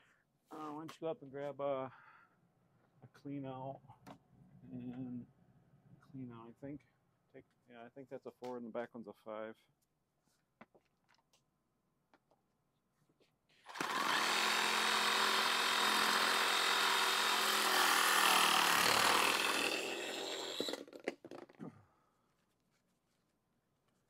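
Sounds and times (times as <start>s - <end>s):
power tool motor running: 13.7s - 20.8s.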